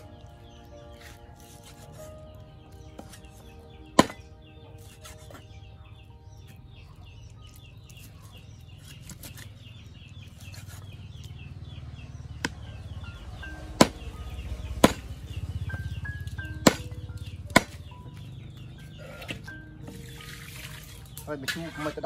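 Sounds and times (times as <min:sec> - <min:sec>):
cleaver chopping meat on wood: 0:03.9 - 0:04.2, 0:12.4 - 0:12.7, 0:14.8 - 0:15.1, 0:16.6 - 0:16.9, 0:17.5 - 0:20.0.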